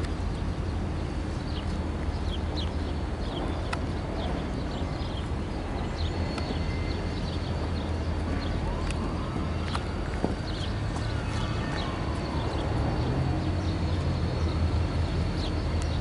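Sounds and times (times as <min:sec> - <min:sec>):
locomotive engine rumble: 0:00.0 - 0:16.0.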